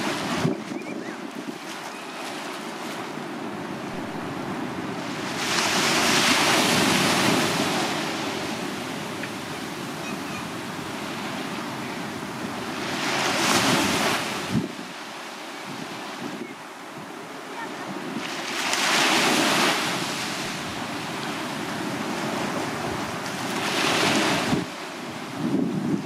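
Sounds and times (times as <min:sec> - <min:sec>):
waves breaking on beach: 0:00.0 - 0:26.0.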